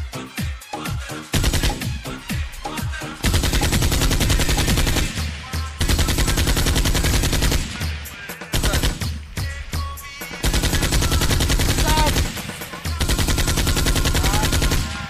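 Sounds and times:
automatic gunfire: 0:01.3 - 0:02.2, 0:03.2 - 0:09.2, 0:10.4 - 0:15.0.

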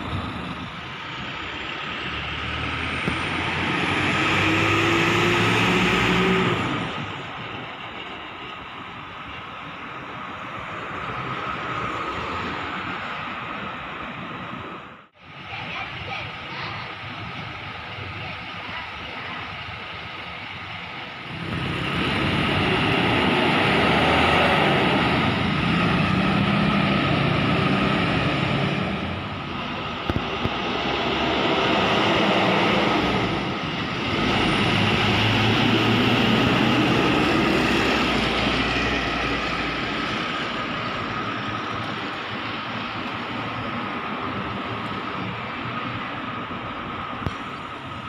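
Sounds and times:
bus diesel engines passing: 0:00.0 - 0:48.0.

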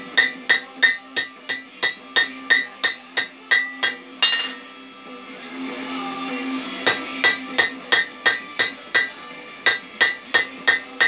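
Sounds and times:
hammer striking hot steel on anvil: 0:00.0 - 0:04.6, 0:06.8 - 0:11.0.

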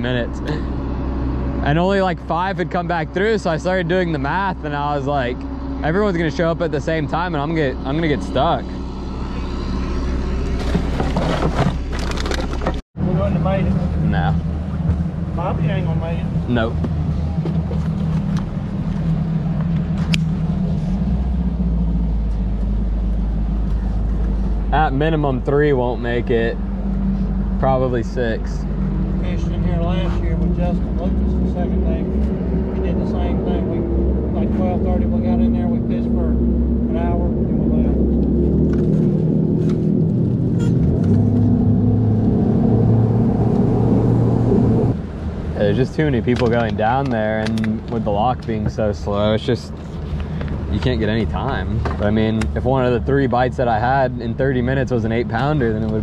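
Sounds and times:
outboard motor running: 0:00.0 - 0:42.1.

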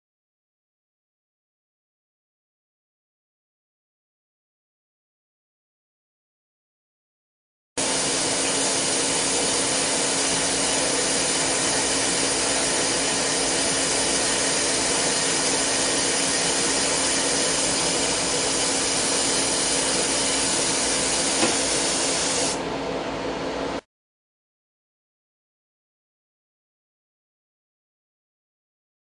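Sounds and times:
boring bar cutting hiss: 0:07.8 - 0:22.6
lathe hum: 0:07.8 - 0:22.6.

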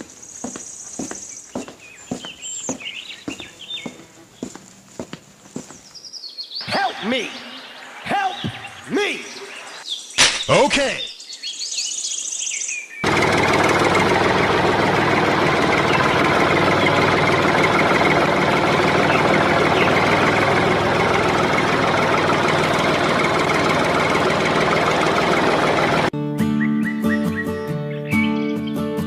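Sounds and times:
tractor engine running: 0:13.0 - 0:26.1.

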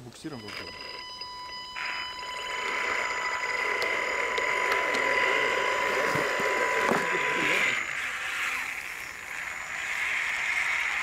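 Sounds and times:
electric motors whining: 0:00.4 - 0:11.0.

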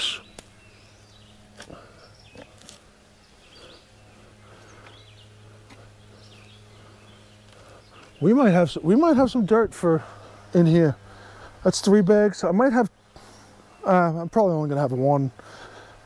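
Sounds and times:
faint bird chirps: 0:00.0 - 0:08.5
low steady hum: 0:00.0 - 0:16.0
soft clicks of soil clumps: 0:01.6 - 0:02.9.

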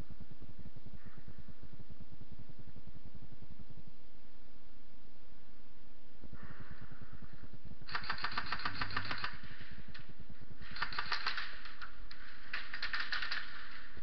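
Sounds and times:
airsoft guns firing bursts: 0:07.9 - 0:14.0.

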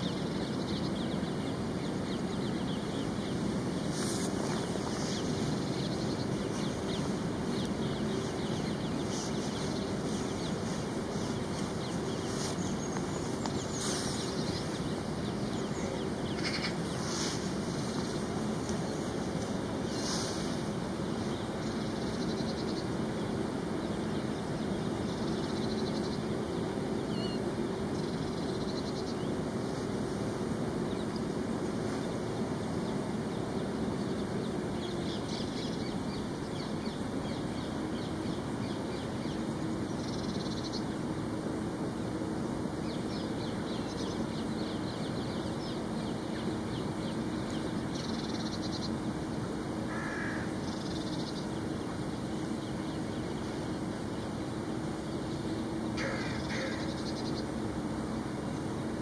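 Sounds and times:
bird calls: 0:00.0 - 0:30.0, 0:42.8 - 0:57.8
low drone: 0:00.0 - 0:59.0.

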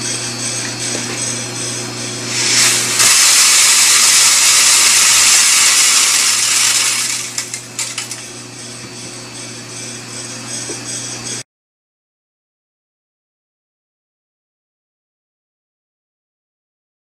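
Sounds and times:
steady low hum: 0:00.0 - 0:03.0, 0:07.3 - 0:11.4
coffee beans rattling into sieve: 0:02.3 - 0:08.3.

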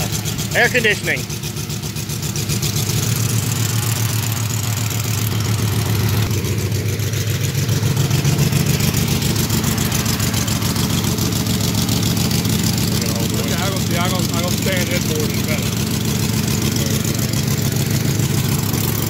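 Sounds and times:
car engine humming: 0:00.0 - 0:19.0.

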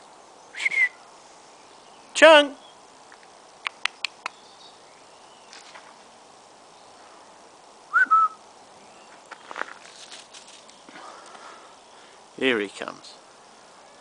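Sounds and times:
short rising whistle: 0:00.6 - 0:01.0, 0:07.9 - 0:08.4
faint scattered clicks: 0:03.1 - 0:04.4, 0:09.1 - 0:11.5.

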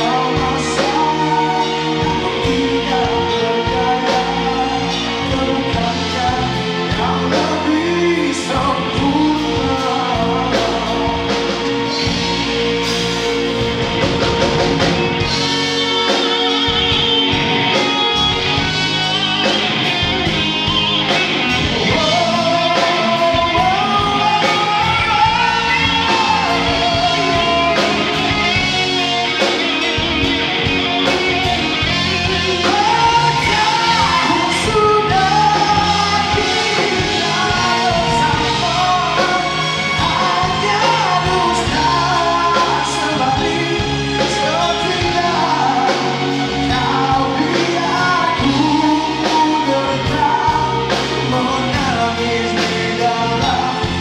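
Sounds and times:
man singing into a microphone: 0:00.0 - 0:12.4, 0:21.7 - 0:28.8, 0:31.9 - 0:54.0
band playing: 0:00.0 - 0:54.0.

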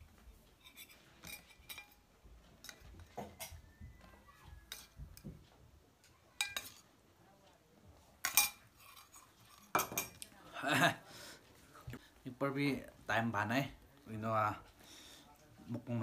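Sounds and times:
small clinks on a plate: 0:00.6 - 0:02.0, 0:06.4 - 0:06.9, 0:08.2 - 0:10.3.

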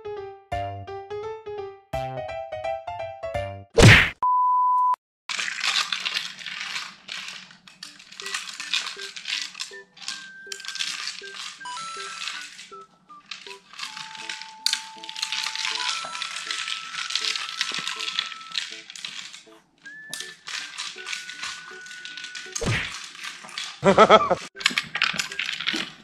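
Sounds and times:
treats rattling in plastic ball: 0:05.3 - 0:26.0
light background music: 0:07.9 - 0:23.1.

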